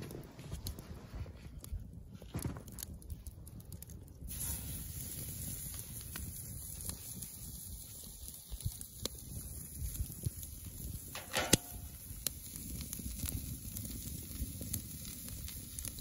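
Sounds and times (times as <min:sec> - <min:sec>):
steak sizzling on a grill: 0:04.3 - 0:16.0.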